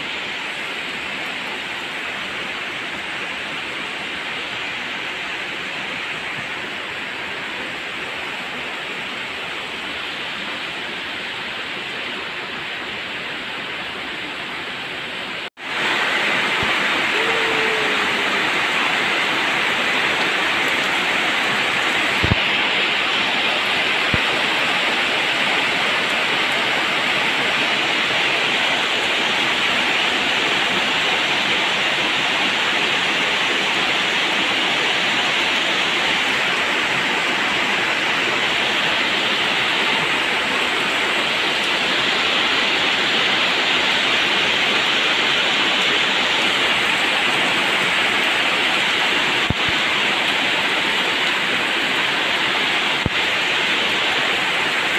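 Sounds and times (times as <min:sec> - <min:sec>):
heavy rain pouring on roofs: 0:00.0 - 0:54.9.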